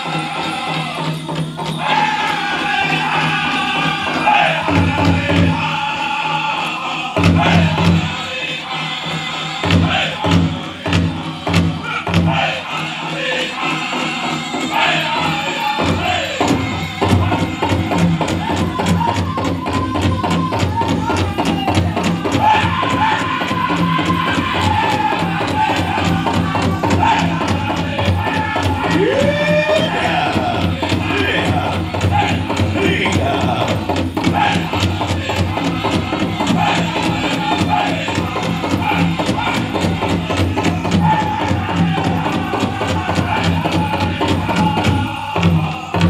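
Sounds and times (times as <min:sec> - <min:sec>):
men chanting in unison: 0:00.0 - 0:46.0
bass drum beat: 0:15.8 - 0:46.0.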